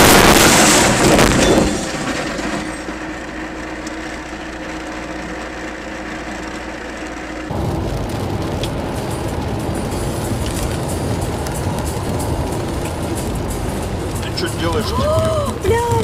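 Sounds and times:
glass shattering: 0:00.0 - 0:03.0
car crash impact: 0:00.0 - 0:03.3.

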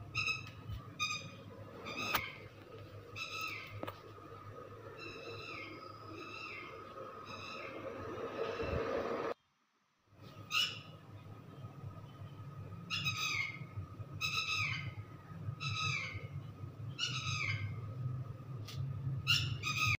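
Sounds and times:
low hum: 0:00.0 - 0:09.4
bird calling: 0:04.9 - 0:08.9.

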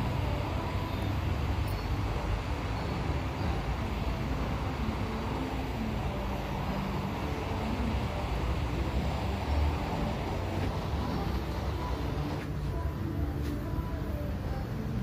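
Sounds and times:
hot-air gun blowing: 0:01.3 - 0:12.8.

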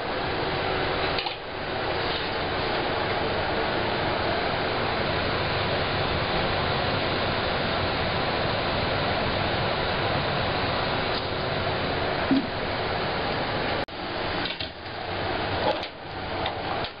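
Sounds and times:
gas stove rushing hiss: 0:00.0 - 0:17.0.

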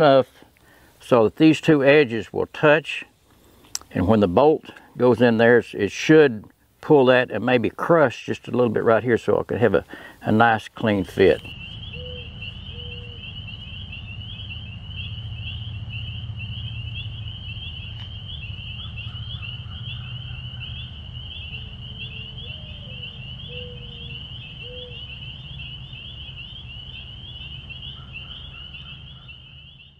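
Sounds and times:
high pulsing animal chorus: 0:03.9 - 0:29.9
low rumble: 0:11.4 - 0:28.8.

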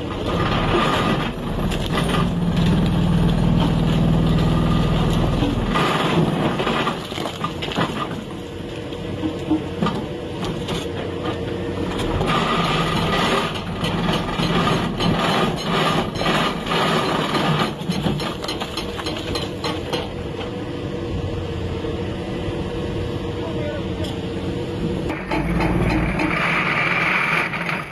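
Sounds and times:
hydraulic breaker pounding rock: 0:00.0 - 0:08.4, 0:09.2 - 0:20.2, 0:25.1 - 0:27.9
excavator engine running: 0:00.0 - 0:27.9.

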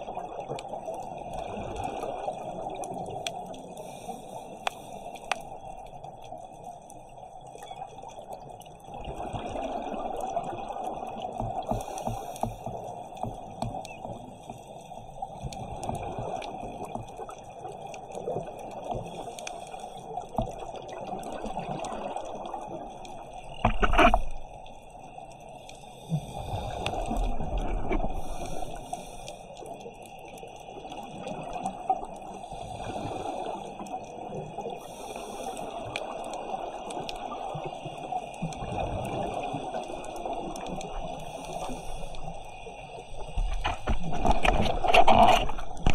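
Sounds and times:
regulator bubbles gurgling: 0:00.0 - 0:03.8, 0:07.6 - 0:14.2, 0:20.0 - 0:24.5, 0:26.2 - 0:29.0, 0:29.6 - 0:45.9
underwater watery hiss: 0:00.4 - 0:06.7, 0:08.9 - 0:45.9.

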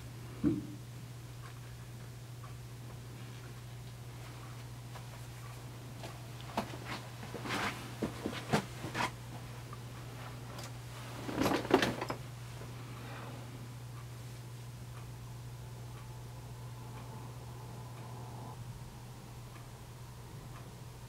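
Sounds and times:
steady low hum: 0:00.0 - 0:21.0
fabric rustling: 0:06.4 - 0:09.6, 0:10.2 - 0:12.2.

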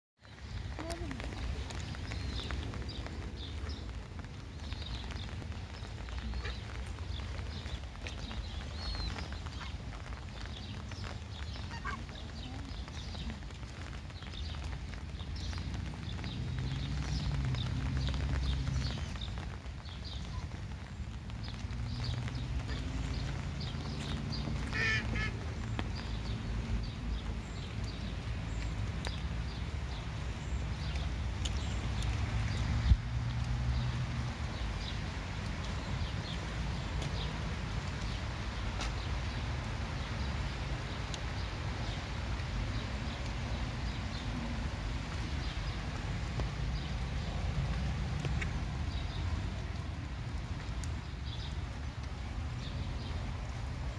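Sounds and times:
ducklings peeping: 0:24.7 - 0:25.3.

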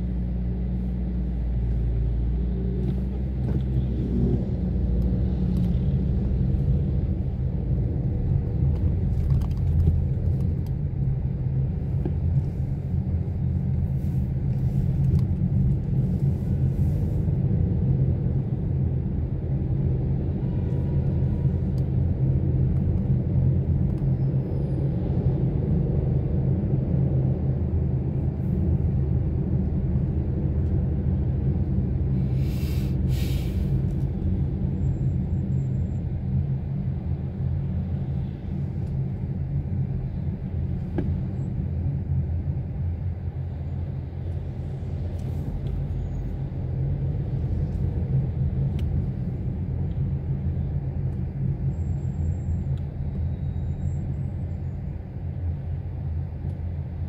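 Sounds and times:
car driving rumble: 0:00.0 - 0:57.0
brief hiss: 0:32.4 - 0:33.7.

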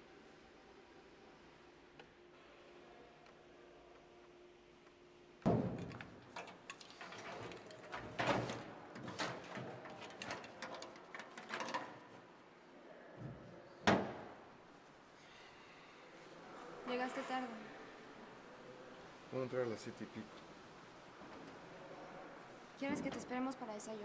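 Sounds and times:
things clattering and rustling: 0:05.5 - 0:12.4.

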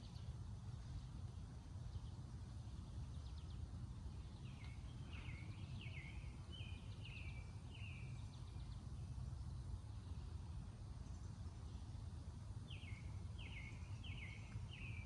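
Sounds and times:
low outdoor rumble: 0:00.0 - 0:15.0
songbird singing: 0:00.0 - 0:15.0.

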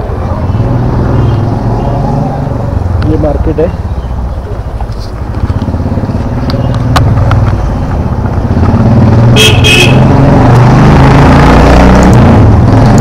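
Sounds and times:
motorcycle engine running: 0:00.4 - 0:10.4.

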